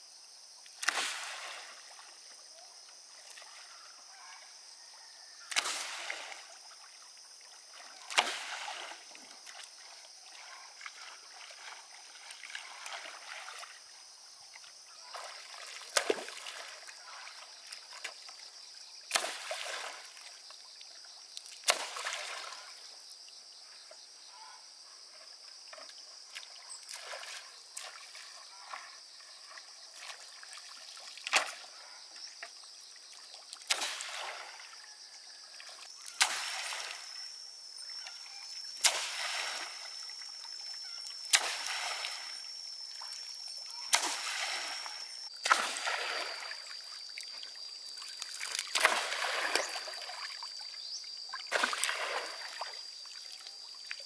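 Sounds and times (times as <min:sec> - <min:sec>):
pole slapping water: 0:00.7 - 0:02.1, 0:05.5 - 0:13.8, 0:15.0 - 0:18.4, 0:19.0 - 0:20.5, 0:21.4 - 0:22.8, 0:25.7 - 0:32.5, 0:33.1 - 0:34.8, 0:35.6 - 0:37.2, 0:37.9 - 0:47.3, 0:48.0 - 0:50.5, 0:51.3 - 0:54.0.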